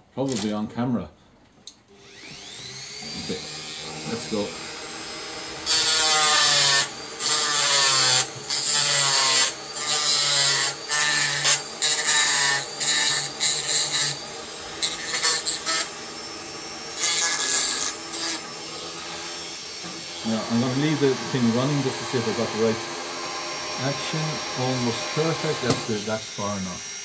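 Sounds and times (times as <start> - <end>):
rotary tool motor running: 2.0 - 27.0
disc grinding through plastic: 18.0 - 26.0.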